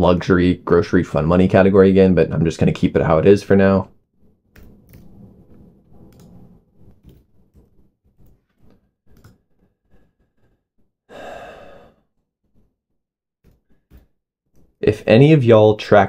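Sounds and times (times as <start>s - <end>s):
person sighing: 11.1s - 12.1s.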